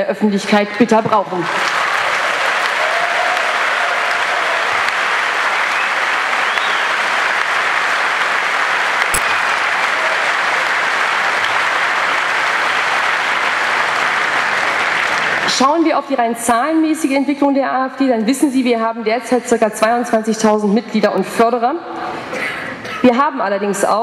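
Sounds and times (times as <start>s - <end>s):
audience applauding: 1.2s - 15.9s.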